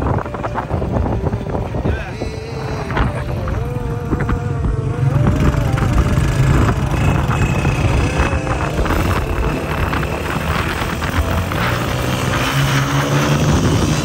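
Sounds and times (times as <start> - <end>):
motorcycle engines running: 0.0 - 14.0.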